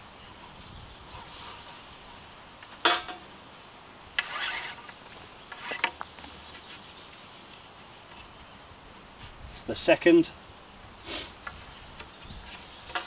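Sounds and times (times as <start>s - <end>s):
rope rubbing swishes: 4.2s - 4.9s.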